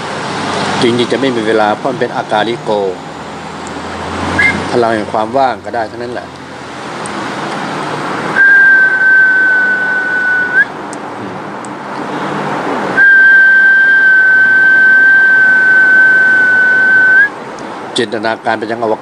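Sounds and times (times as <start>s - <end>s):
long high whistled notes: 8.4s - 10.7s, 13.0s - 17.3s.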